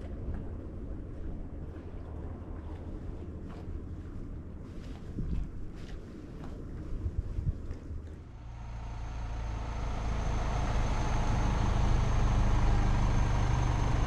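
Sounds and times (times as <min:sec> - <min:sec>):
low engine drone: 0:08.0 - 0:14.0
faint high whine: 0:08.4 - 0:14.0.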